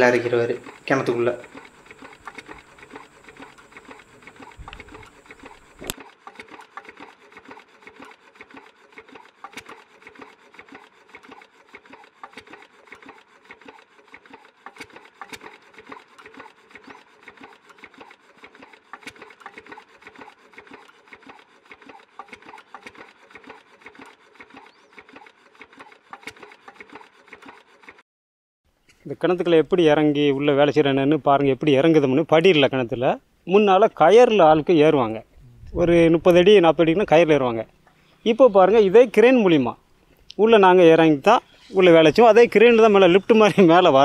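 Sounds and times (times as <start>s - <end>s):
stationary engine running: 0.0s - 28.0s.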